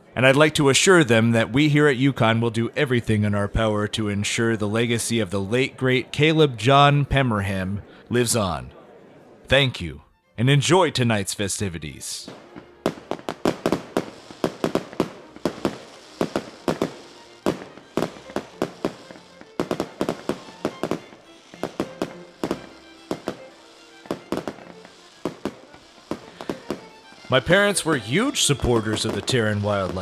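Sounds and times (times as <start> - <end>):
quiet music: 0.0 - 30.0
fireworks bangs and crackles: 12.3 - 30.0.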